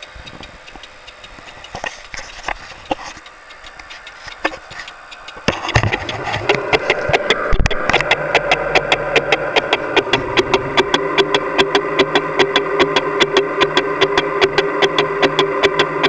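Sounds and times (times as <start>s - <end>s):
metal lathe humming: 4.8s - 16.0s
lathe tool knocking: 5.4s - 16.0s.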